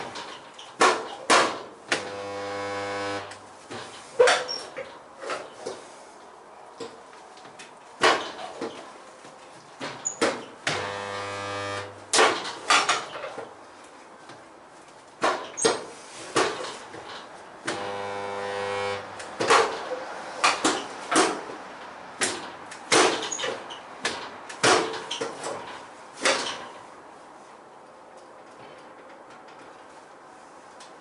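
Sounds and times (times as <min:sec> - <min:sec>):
welder electrical hum: 0:01.9 - 0:03.5, 0:10.7 - 0:12.1, 0:17.6 - 0:19.3.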